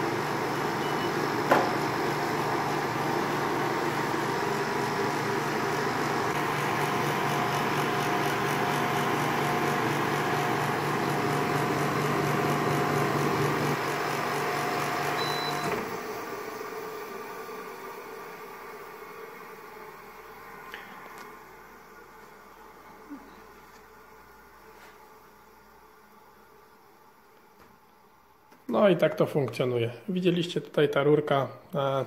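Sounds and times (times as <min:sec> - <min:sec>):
fan blowing: 0:00.0 - 0:23.2
air conditioner compressor hum: 0:00.0 - 0:32.0.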